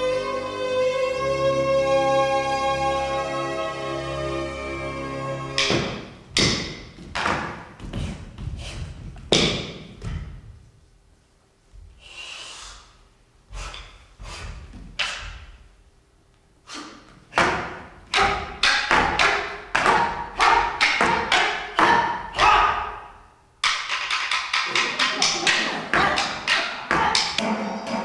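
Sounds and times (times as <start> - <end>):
wooden sticks knocking together: 5.6 - 7.9, 17.4 - 22.6, 23.6 - 27.4.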